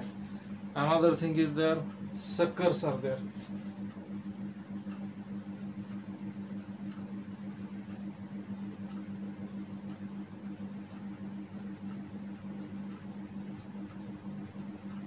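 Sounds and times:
low electrical hum: 0:00.0 - 0:15.0
faint high tick-tone: 0:03.8 - 0:15.0.

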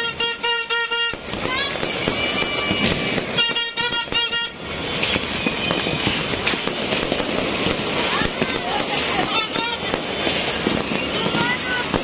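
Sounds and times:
continuous din: 0:00.0 - 0:12.0
fireworks crackling and popping: 0:00.0 - 0:12.0
horn short toots: 0:01.9 - 0:04.6.

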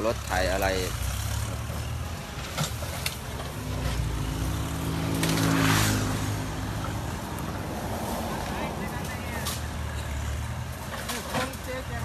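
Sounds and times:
heavy machinery engines humming: 0:00.0 - 0:12.0.

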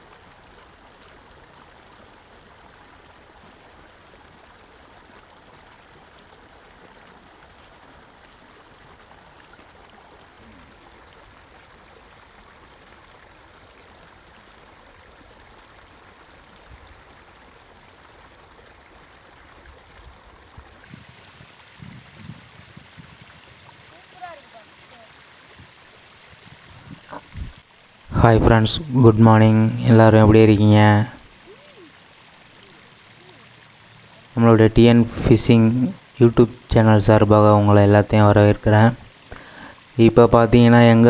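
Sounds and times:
rushing water hiss: 0:10.0 - 0:41.0.

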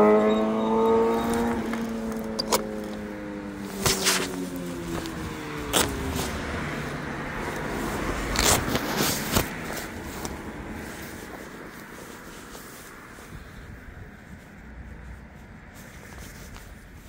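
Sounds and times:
electric scooter motor whine: 0:00.0 - 0:03.6
wind and road noise: 0:00.0 - 0:17.0.

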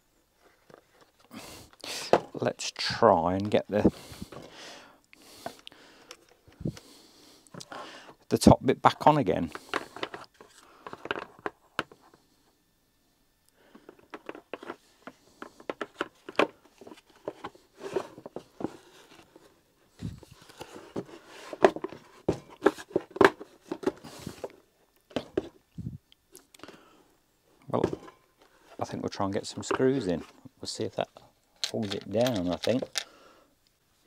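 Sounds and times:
plastic parts clicking and knocking: 0:09.5 - 0:12.0, 0:13.7 - 0:19.2, 0:20.4 - 0:25.6, 0:31.6 - 0:33.2.

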